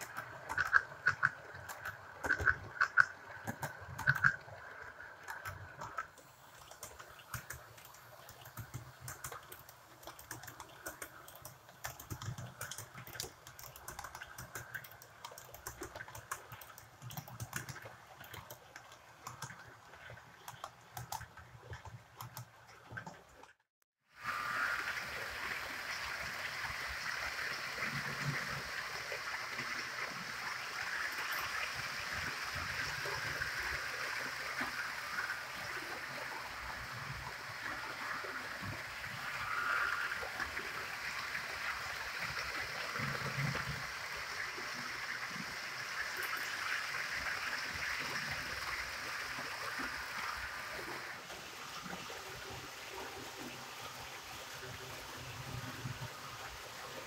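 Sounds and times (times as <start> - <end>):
model train wheels clicking: 0.0 - 23.2
model train running hum: 24.2 - 51.9.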